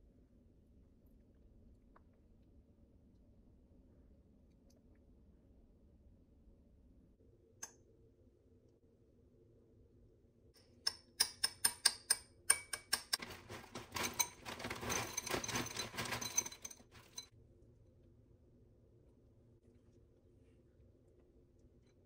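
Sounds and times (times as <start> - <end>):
granola pouring into a bowl: 13.2 - 17.3.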